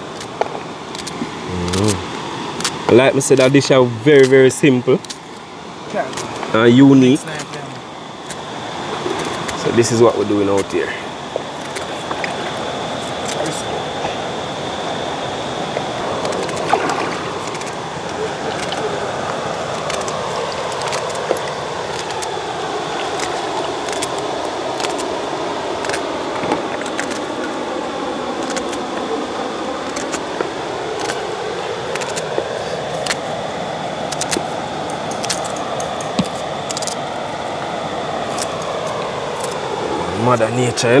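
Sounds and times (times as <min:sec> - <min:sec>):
river water rushing: 0:11.1 - 0:41.0.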